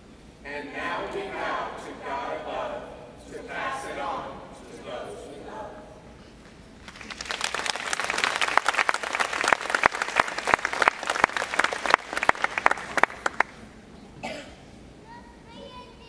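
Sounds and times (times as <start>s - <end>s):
audience applauding: 6.8s - 13.6s.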